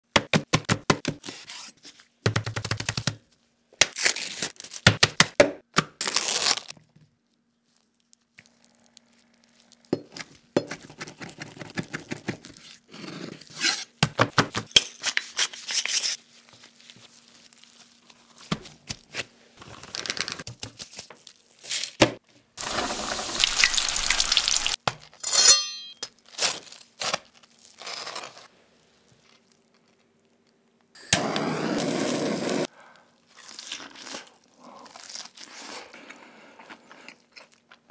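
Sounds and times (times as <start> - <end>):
crisp crunching: 6.0 - 10.0, 16.2 - 19.0
deep-frying sizzle: 22.6 - 24.8.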